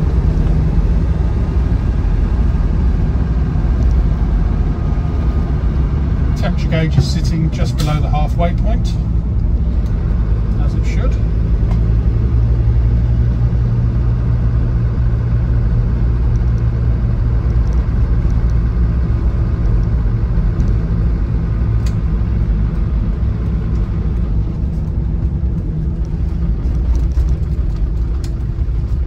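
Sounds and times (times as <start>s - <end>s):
diesel engine drone in cabin: 0.0s - 29.0s
road noise: 0.0s - 29.0s
click: 3.8s - 4.0s.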